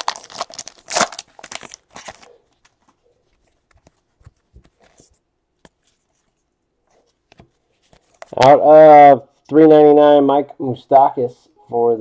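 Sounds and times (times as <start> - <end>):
foil wrapper crinkling: 0.0 - 2.9.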